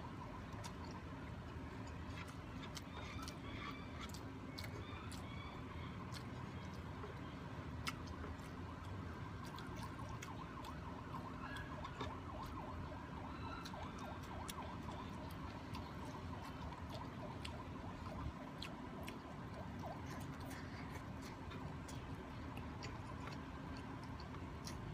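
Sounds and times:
chewing clicks and smacks: 0.0s - 24.9s
steady background hum: 0.0s - 24.9s.

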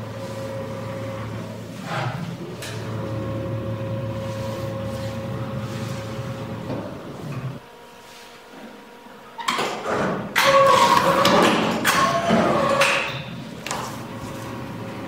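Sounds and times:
machine low hum: 0.0s - 15.0s
machine drive knock and whine: 6.2s - 7.6s.

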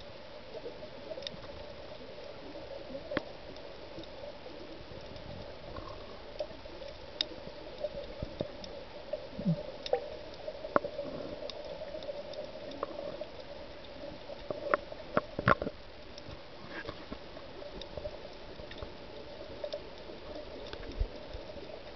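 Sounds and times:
faint underwater hum: 0.0s - 21.9s
light hiss: 0.0s - 21.9s
sharp clicks and pops: 9.4s - 19.0s.

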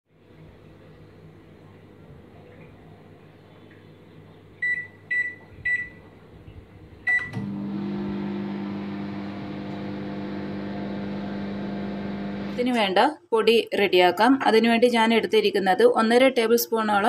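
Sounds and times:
microwave keypad beeps: 4.6s - 6.0s, 7.1s - 7.5s
microwave oven humming: 7.0s - 12.6s.

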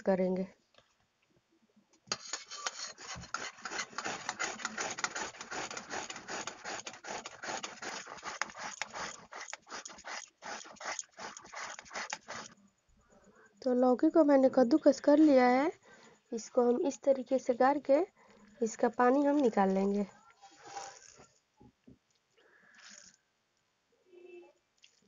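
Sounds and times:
gourd grated on metal grater: 2.1s - 12.6s.

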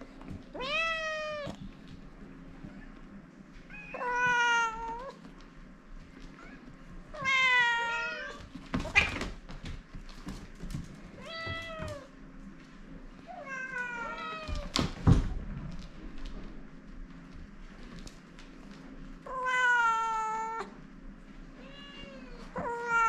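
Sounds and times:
cat meowing: 0.6s - 1.6s, 3.7s - 5.1s, 6.4s - 8.4s, 19.3s - 20.7s, 21.6s - 23.0s.

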